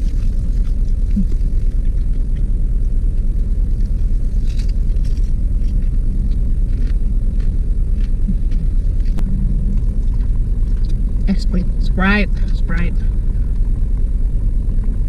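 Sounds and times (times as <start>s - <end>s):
chewing crunches: 0.0s - 11.3s
car idling rumble: 0.0s - 15.0s.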